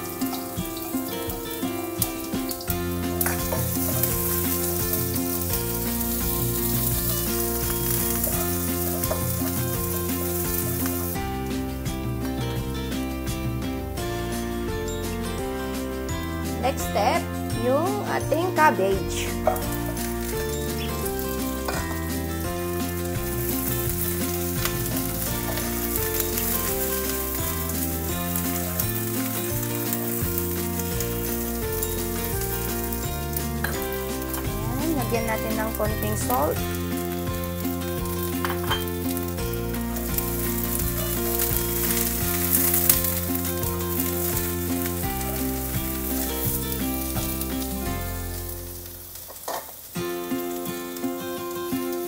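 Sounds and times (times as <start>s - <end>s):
spatula scraping wok: 0.0s - 11.9s, 19.3s - 48.4s
background music: 0.0s - 52.0s
shallots sizzling in hot oil: 0.0s - 52.0s.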